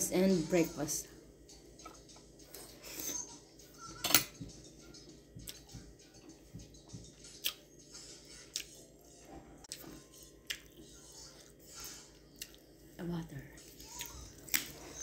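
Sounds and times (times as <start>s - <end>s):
person chewing food: 7.1s - 12.8s, 13.6s - 15.0s.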